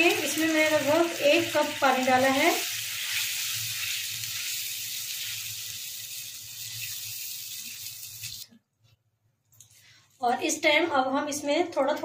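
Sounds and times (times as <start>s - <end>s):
gravy sizzling and bubbling: 0.0s - 8.5s.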